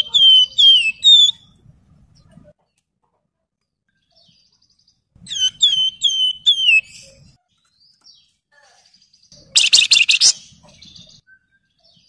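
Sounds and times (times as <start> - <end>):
bird whistling song: 0.0 - 1.6, 5.2 - 7.2, 9.3 - 12.0.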